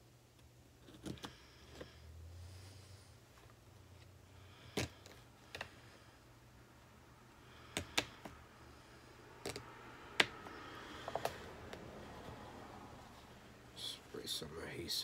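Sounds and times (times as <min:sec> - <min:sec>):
faint hum: 0:00.0 - 0:15.0
hands handling craft materials: 0:09.3 - 0:13.3.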